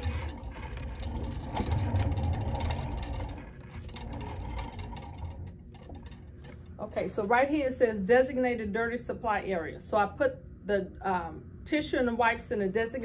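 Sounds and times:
cart rolling on hard floor: 0.0 - 6.6.

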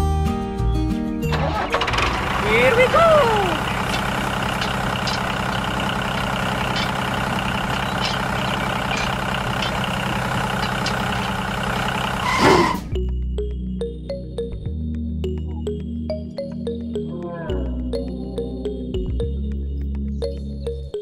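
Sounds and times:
tractor diesel engine: 1.2 - 13.0.

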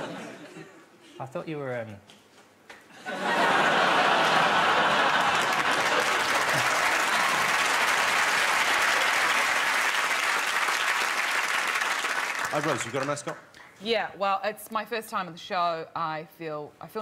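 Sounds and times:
studio audience applauding: 3.2 - 13.5.

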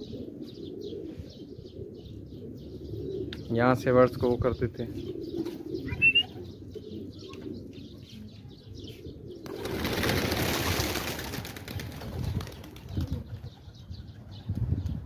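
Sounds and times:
pigeon wingbeats: 9.4 - 13.5.

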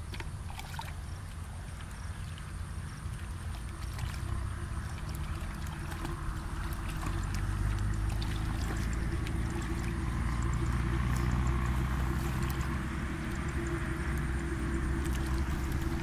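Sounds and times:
hands splashing in muddy water: 0.0 - 12.8
low steady rumble: 0.0 - 16.0.

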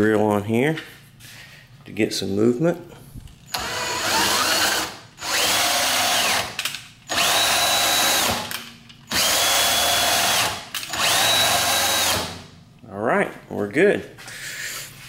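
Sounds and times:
cordless drill whine: 3.5 - 12.4.

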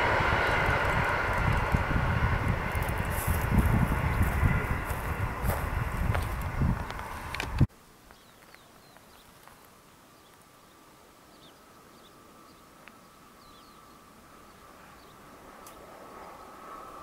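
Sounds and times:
loud rush of noise: 0.0 - 7.7
small birds chirping: 8.0 - 16.7.

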